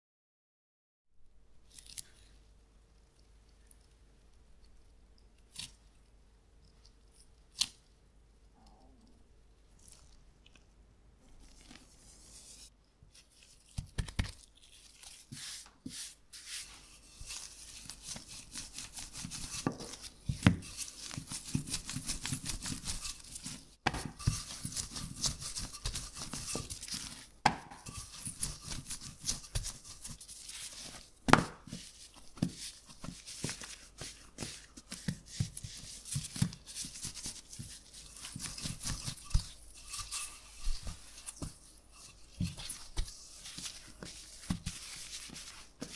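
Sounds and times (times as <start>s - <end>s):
rolling pin rolling dough: 15.0s - 45.9s
rolling pin knocking on worktop: 27.4s - 27.8s.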